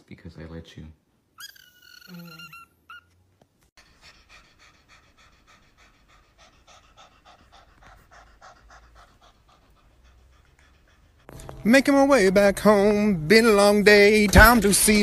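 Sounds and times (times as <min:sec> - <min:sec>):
cat panting rapidly: 0:03.8 - 0:11.6.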